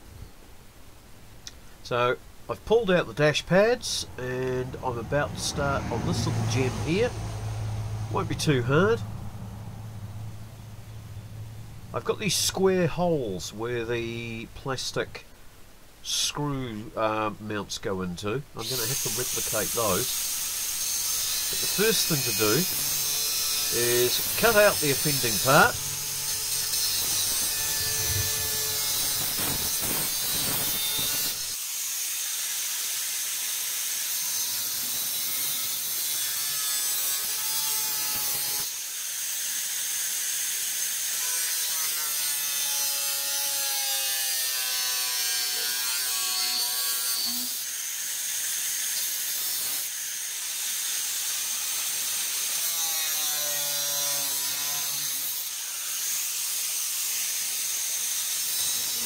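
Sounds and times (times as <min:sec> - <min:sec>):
angle grinder cutting metal: 0:03.6 - 0:09.0, 0:18.6 - 0:59.0.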